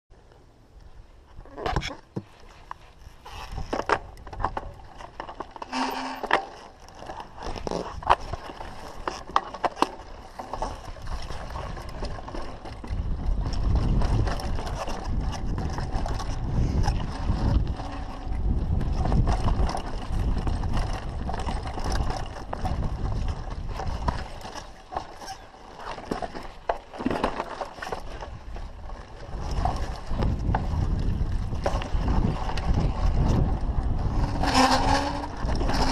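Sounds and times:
bike chain and frame rattling: 0:03.0 - 0:35.9
wind rumble on microphone: 0:10.0 - 0:25.4, 0:27.8 - 0:35.9.

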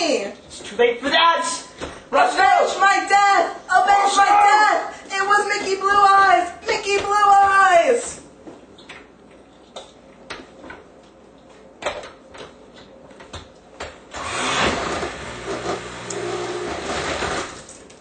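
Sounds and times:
blender motor running: 0:14.1 - 0:17.6.

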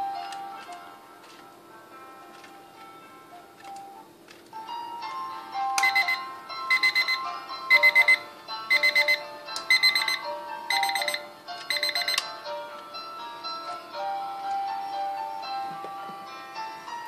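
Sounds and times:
alarm clock beeping: 0:05.7 - 0:12.2.

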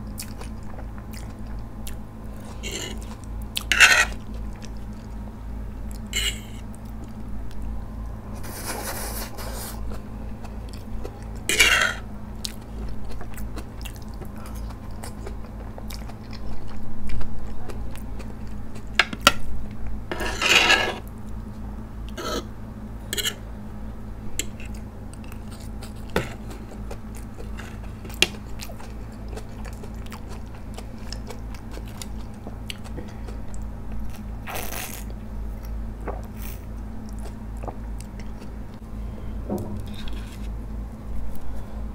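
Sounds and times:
chewing: 0:00.0 - 0:05.2, 0:09.8 - 0:19.2, 0:24.4 - 0:34.2, 0:35.5 - 0:38.8
steady low hum: 0:00.0 - 0:41.9.

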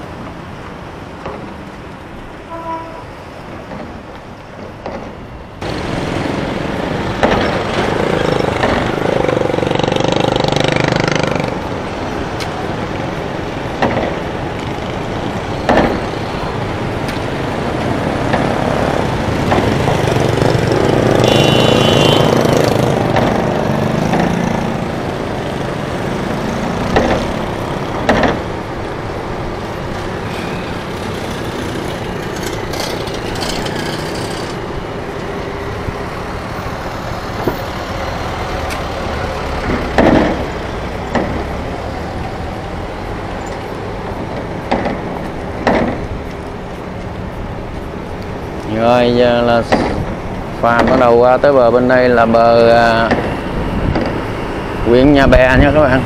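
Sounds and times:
motorbike and car engines: 0:04.9 - 0:56.0
wheels knocking on steel ramp: 0:07.1 - 0:09.1, 0:15.6 - 0:16.1, 0:26.3 - 0:28.5.

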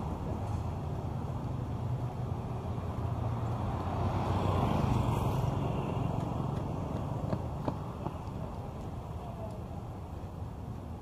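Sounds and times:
rumble of road traffic: 0:00.0 - 0:11.0
vehicle passing close by: 0:01.9 - 0:09.0.

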